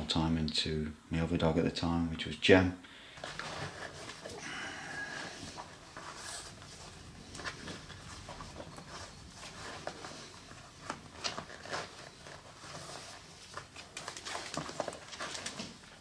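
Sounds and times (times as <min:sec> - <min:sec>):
boot laces rustling and clicking: 0:05.5 - 0:16.0.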